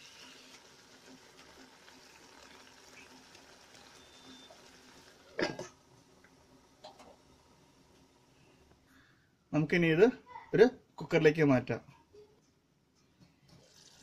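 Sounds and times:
curry simmering in a pot: 0:00.0 - 0:08.9, 0:13.5 - 0:14.0.

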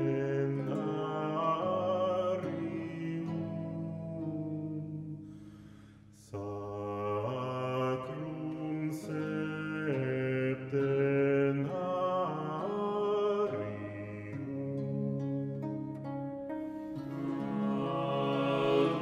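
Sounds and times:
male vocal ensemble singing: 0:06.4 - 0:14.5, 0:17.2 - 0:19.0.

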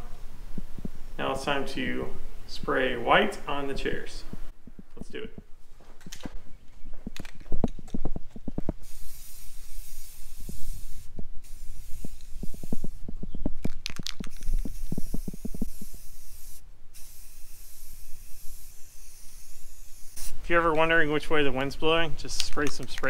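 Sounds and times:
spray can rattling when shaken: 0:07.2 - 0:20.4
aerosol spray can hissing: 0:08.8 - 0:13.1, 0:13.7 - 0:20.4.

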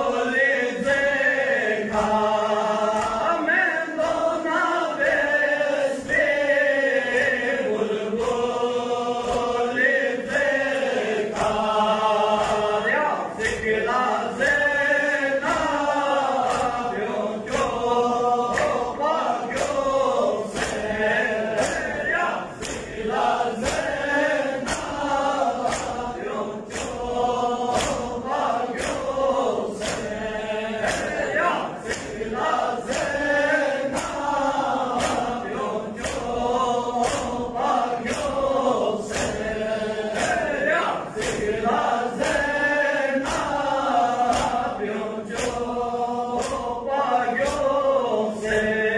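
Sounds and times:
men chanting in unison: 0:00.0 - 0:48.9
chest-beating slaps: 0:00.8 - 0:02.2, 0:02.9 - 0:04.4, 0:06.0 - 0:47.8.

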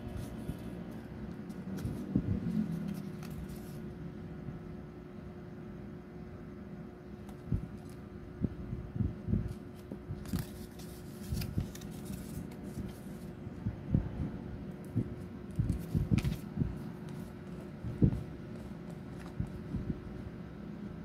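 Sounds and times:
paper rustling and crinkling: 0:00.0 - 0:03.9, 0:09.5 - 0:13.4, 0:15.5 - 0:19.7
faint steady hum: 0:00.0 - 0:21.0.

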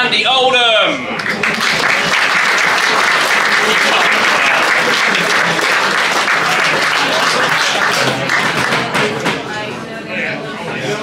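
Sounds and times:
audience applauding: 0:01.2 - 0:09.3.

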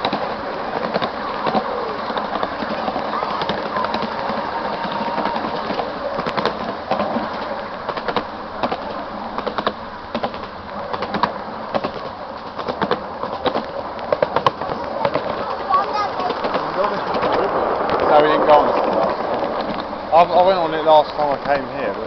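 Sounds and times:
miniature train running rumble: 0:00.0 - 0:22.0
wheels clicking and knocking: 0:00.0 - 0:22.0.

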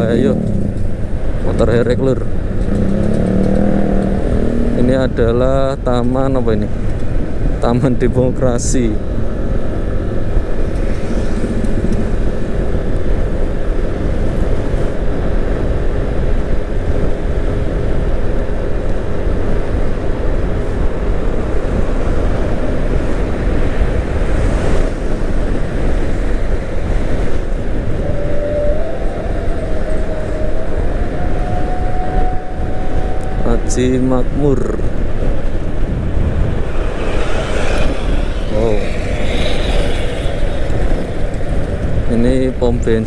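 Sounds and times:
tyre and road noise: 0:00.0 - 0:43.0
wind rushing over microphone: 0:00.0 - 0:43.0
faint rising tone: 0:34.6 - 0:41.9
scooter engine cruising: 0:34.8 - 0:42.2.

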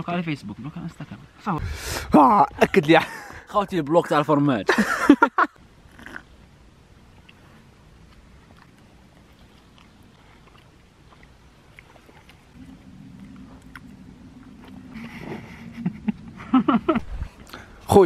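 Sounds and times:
low hum: 0:05.6 - 0:18.0
biting and chewing bread: 0:07.2 - 0:14.8.

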